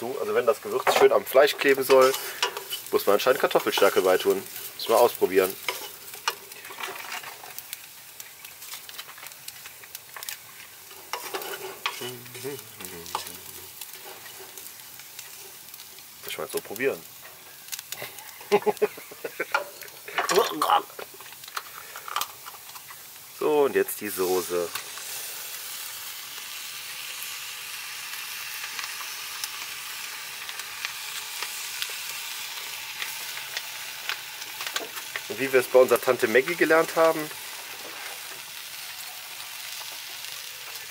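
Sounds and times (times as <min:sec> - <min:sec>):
chicken sizzling in a saucepan: 0:00.0 - 0:40.9
wooden spoon scraping a pan: 0:00.7 - 0:07.6, 0:10.1 - 0:15.6, 0:34.6 - 0:38.4.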